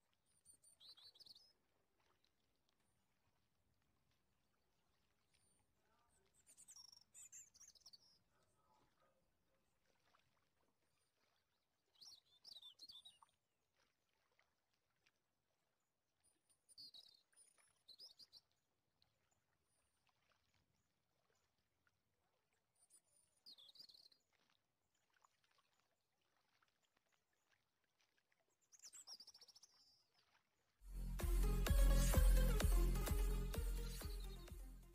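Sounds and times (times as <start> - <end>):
faint bird chirping: 0.4 - 1.6, 5.8 - 9.2.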